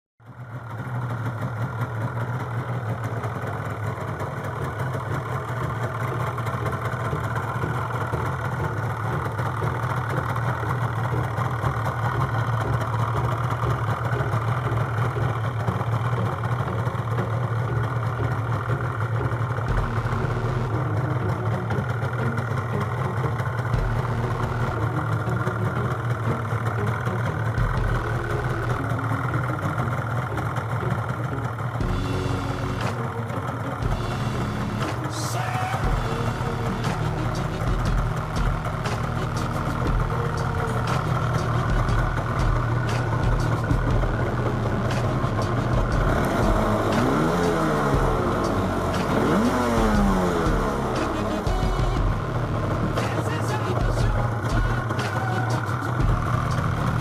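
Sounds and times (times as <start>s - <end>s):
motorcycle engine idling: 0.2s - 57.0s.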